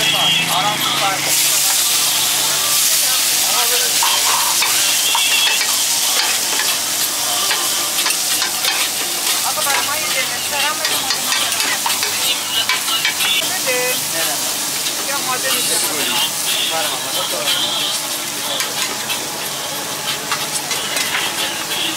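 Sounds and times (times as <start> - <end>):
meat sizzling on griddle: 0.0 - 21.9
metal spatula scraping and tapping: 10.7 - 13.4.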